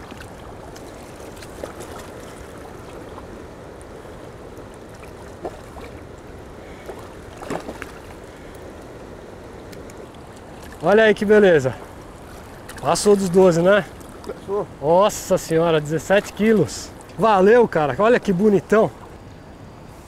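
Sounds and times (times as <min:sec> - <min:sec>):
small water splashes: 0:00.0 - 0:08.7, 0:09.7 - 0:14.4
river water rushing: 0:00.0 - 0:19.8.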